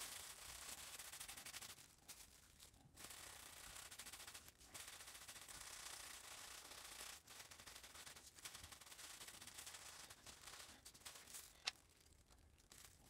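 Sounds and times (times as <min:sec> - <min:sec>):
plastic glove rustling on wood: 0:00.0 - 0:03.4, 0:06.9 - 0:13.0.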